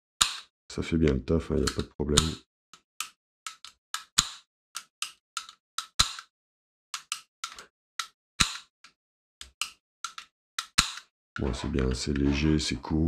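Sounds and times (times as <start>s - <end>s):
sharp metal clicks: 1.6s - 2.4s, 3.0s - 6.3s, 7.0s - 12.3s.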